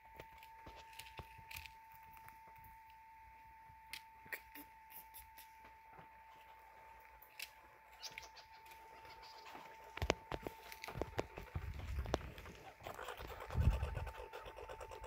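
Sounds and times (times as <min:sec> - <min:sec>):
faint steady whine: 0:00.0 - 0:15.0
squirrel cracking seed shells: 0:00.2 - 0:03.0, 0:07.2 - 0:15.0.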